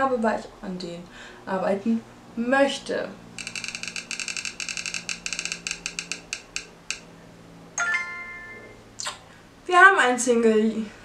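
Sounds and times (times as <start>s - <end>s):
rapid clicking ticks: 3.4s - 7.0s.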